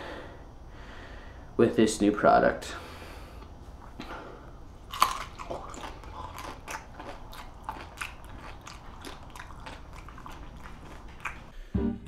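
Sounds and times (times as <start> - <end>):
crunchy bite: 4.8 - 11.5
loud open-mouthed chewing: 4.8 - 11.6.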